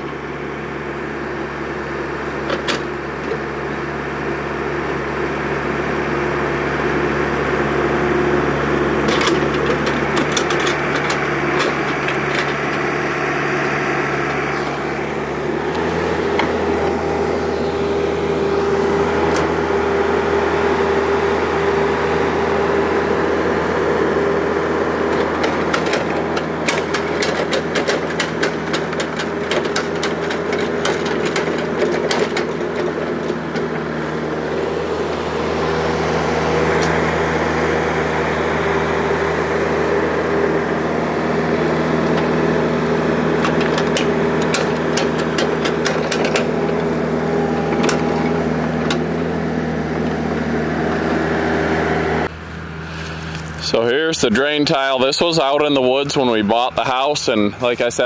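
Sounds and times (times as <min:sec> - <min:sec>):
excavator engine running: 0:00.0 - 0:58.0
rapid clicking and rattling: 0:25.1 - 0:33.7, 0:43.4 - 0:46.8.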